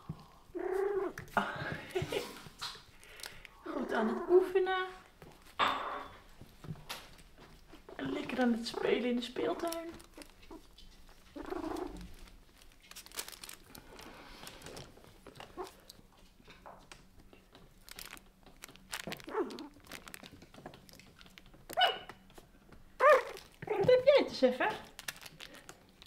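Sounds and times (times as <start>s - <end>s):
puppy whining: 0.4s - 1.3s, 8.0s - 12.3s, 15.4s - 15.9s, 19.0s - 20.1s, 21.6s - 22.3s, 23.0s - 23.9s
puppies scuffling and rustling: 4.2s - 26.0s
soft clicks and crinkles: 9.4s - 24.0s, 24.7s - 26.0s.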